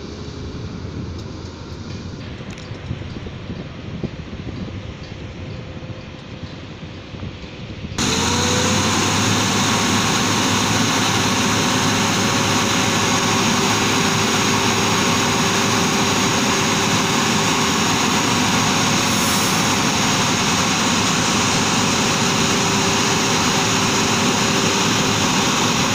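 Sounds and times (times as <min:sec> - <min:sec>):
faint wind: 0:00.0 - 0:25.9
truck diesel engine running: 0:08.0 - 0:25.9.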